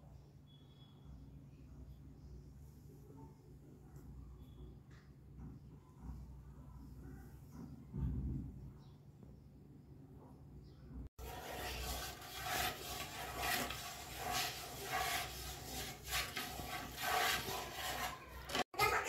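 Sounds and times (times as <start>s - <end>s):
rubbing rustling noise: 11.2s - 18.7s.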